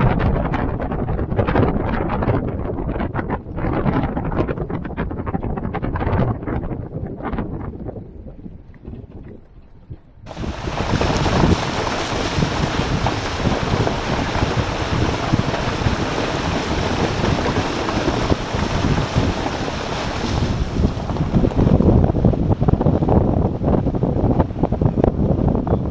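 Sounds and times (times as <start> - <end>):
vehicle low rumble: 0.0 - 25.9
wind buffeting microphone: 0.0 - 25.9
water splashing: 3.0 - 22.8.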